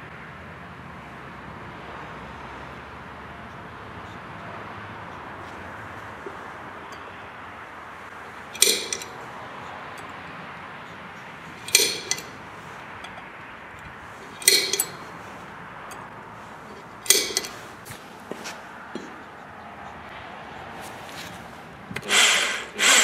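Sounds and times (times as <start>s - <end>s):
metal clinking: 6.2s - 19.4s.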